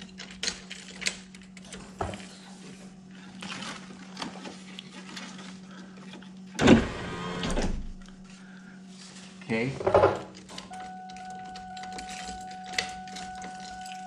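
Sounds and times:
power window motor: 0:06.6 - 0:08.0.

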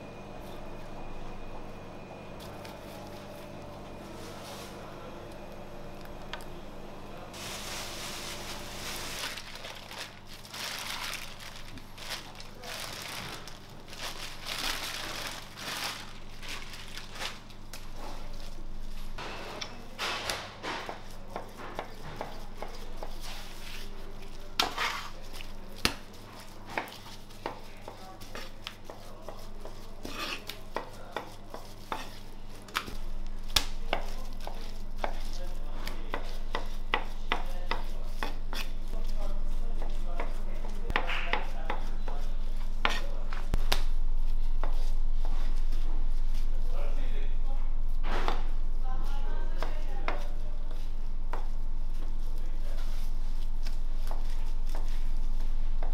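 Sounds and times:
steady low hum: 0:00.0 - 0:55.9
plastic bag rustling: 0:07.4 - 0:18.6
meat being handled: 0:07.4 - 0:19.0.

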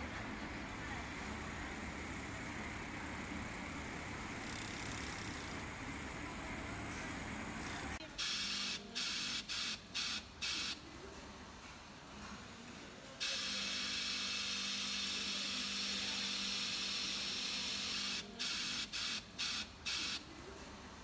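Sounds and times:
sewing machines humming: 0:00.0 - 0:08.0
sewing machine hissing bursts: 0:08.2 - 0:10.8, 0:13.2 - 0:20.2.

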